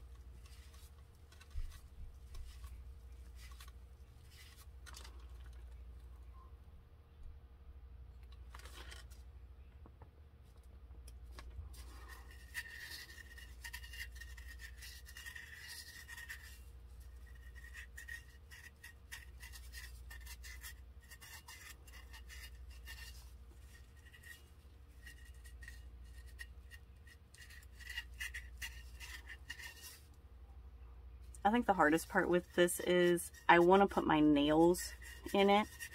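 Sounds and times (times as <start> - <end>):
fingertips rubbing glitter: 31.4 - 35.9.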